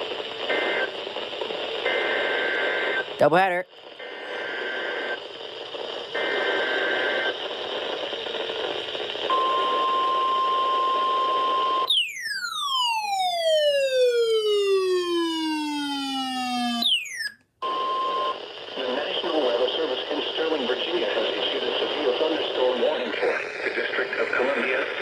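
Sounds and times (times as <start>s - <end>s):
static hiss: 0.0s - 9.3s, 18.4s - 25.0s
steady warning alarm tone: 9.3s - 18.4s
siren-like tone gliding down: 11.9s - 17.4s.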